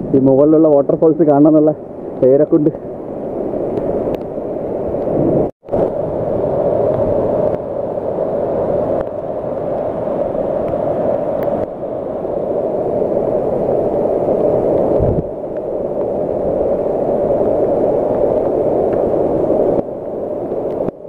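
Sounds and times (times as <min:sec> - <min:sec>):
waterfall rushing water: 0:06.6 - 0:21.0.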